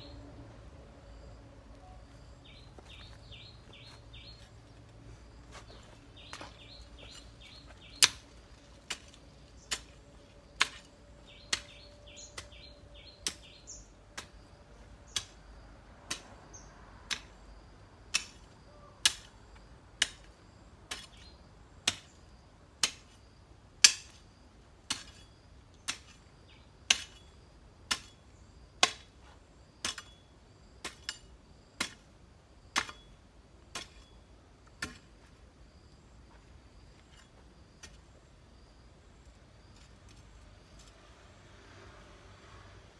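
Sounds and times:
birds chirping: 1.7s - 8.4s, 11.1s - 14.0s
hoe chopping into soil: 5.6s - 13.6s, 18.1s - 19.3s, 20.0s - 22.2s, 22.8s - 23.2s, 23.8s - 30.2s, 30.8s - 35.4s.

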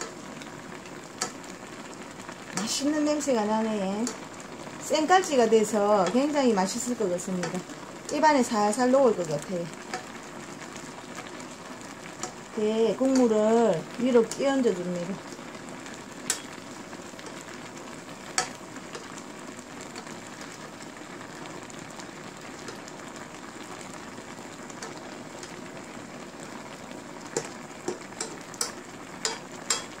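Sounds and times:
food simmering bubbling hiss: 0.0s - 30.0s
spoon clinking on pan: 28.2s - 29.9s.

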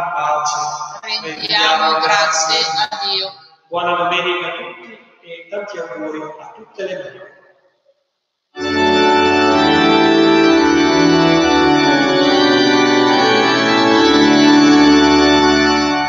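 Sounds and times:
organ playing sustained chords: 8.6s - 16.0s.

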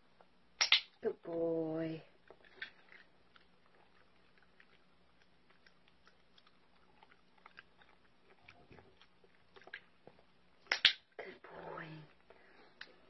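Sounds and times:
puppy chewing a treat: 2.1s - 11.2s.

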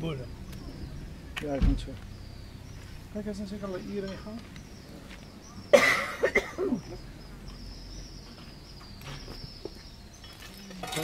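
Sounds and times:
person coughing: 5.7s - 6.8s.

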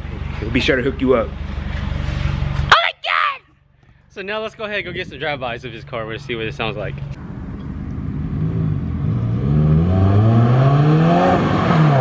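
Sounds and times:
car engine accelerating past: 7.4s - 12.0s.

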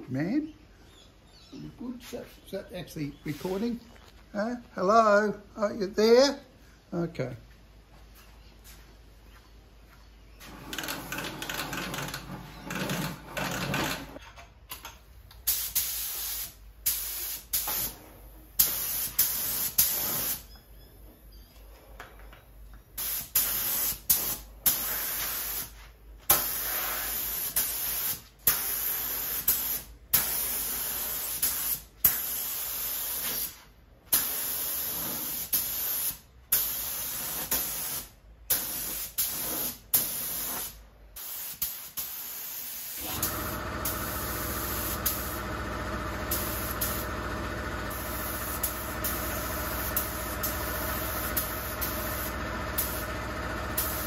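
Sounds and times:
spray gun air hiss: 15.4s - 18.0s, 18.6s - 20.4s, 23.0s - 45.5s, 46.2s - 47.2s, 47.9s - 53.2s, 53.8s - 54.0s.

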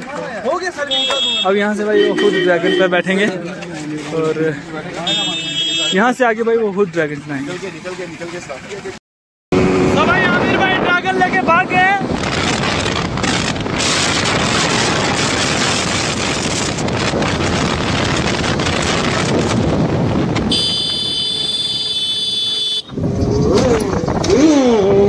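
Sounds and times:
road noise: 0.0s - 25.0s
high multi-note tone: 1.9s - 3.1s
wind rushing over microphone: 9.6s - 22.0s, 22.9s - 25.0s
motorcycle engine revving: 12.1s - 25.0s.

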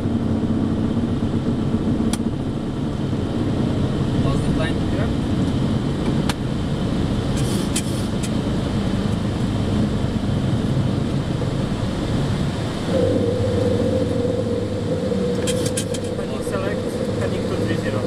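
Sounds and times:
light aircraft engine drone: 0.0s - 18.0s
steady whine: 10.1s - 18.0s.

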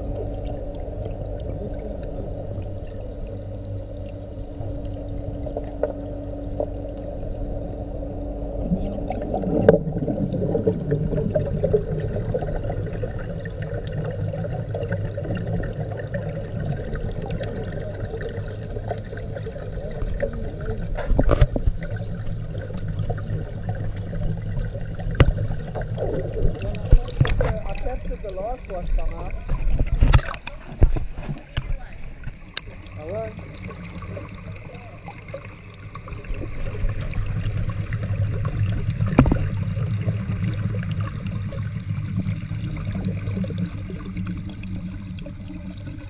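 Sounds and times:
muffled underwater churning: 0.0s - 46.0s
sharp underwater knocks: 25.2s - 27.8s, 38.8s - 39.6s.

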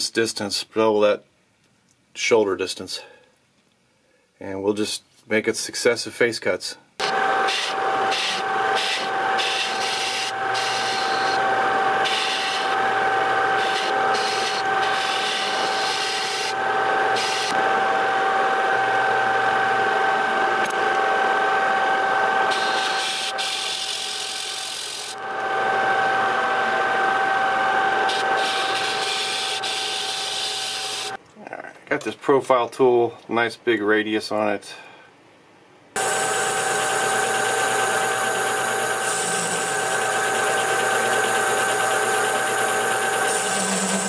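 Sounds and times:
lathe tool cutting hiss: 7.0s - 18.3s, 20.5s - 31.2s, 36.0s - 44.0s
lathe running with whine: 7.0s - 31.2s, 36.0s - 44.0s.

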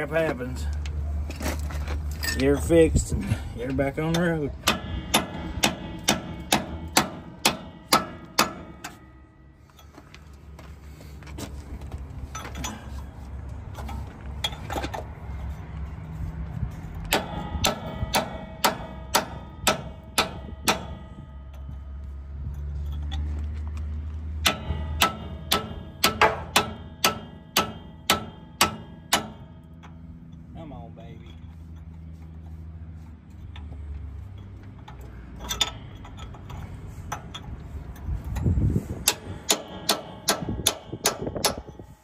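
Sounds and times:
hammer striking metal clanging: 4.0s - 10.0s, 17.0s - 22.1s, 24.4s - 30.0s, 39.0s - 41.8s.

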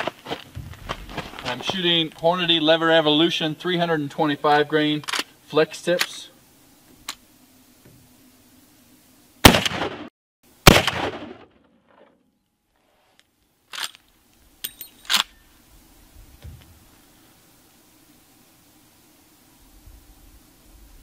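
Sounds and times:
rifle shots: 9.4s - 11.6s.

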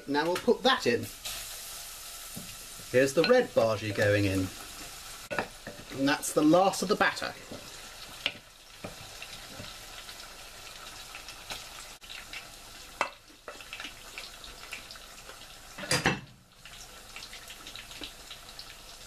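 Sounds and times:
batter sizzling in oil: 0.0s - 19.0s.

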